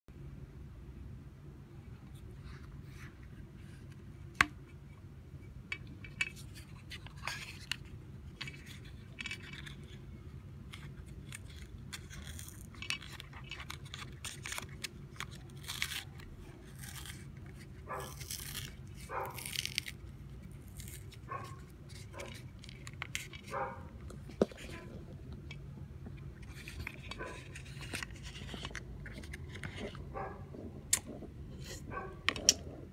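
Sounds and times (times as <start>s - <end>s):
low steady hum: 0.1s - 32.9s
foil wrapper crinkling: 11.0s - 25.2s.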